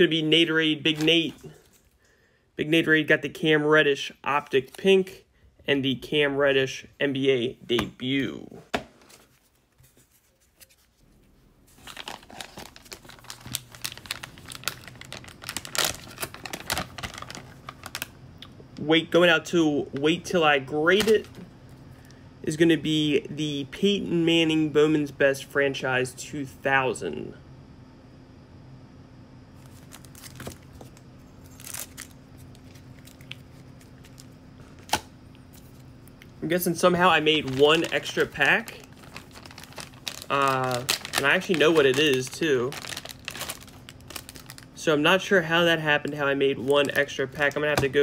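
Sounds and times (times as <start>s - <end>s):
faint steady hum: 0.0s - 48.0s
plastic pouch crinkling: 11.7s - 18.1s, 29.6s - 36.2s, 36.8s - 44.8s, 46.0s - 48.0s.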